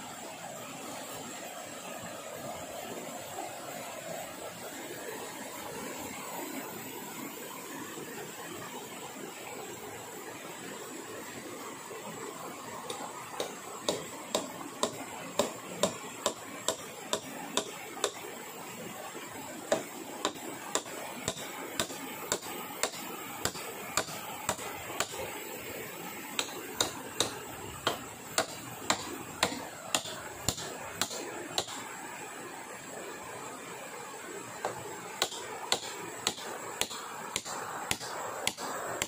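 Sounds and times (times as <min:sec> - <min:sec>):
hand tool striking wood: 0:12.9 - 0:18.2, 0:19.7 - 0:25.2, 0:26.4 - 0:31.8, 0:34.6 - 0:38.7.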